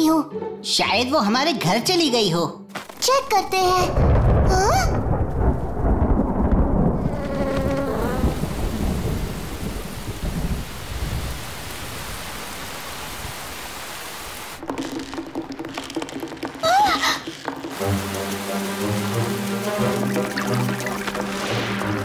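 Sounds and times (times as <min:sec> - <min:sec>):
thunder rumbling: 0:03.5 - 0:13.6, 0:17.4 - 0:22.0
heavy rain hissing: 0:04.3 - 0:14.7, 0:16.6 - 0:22.0.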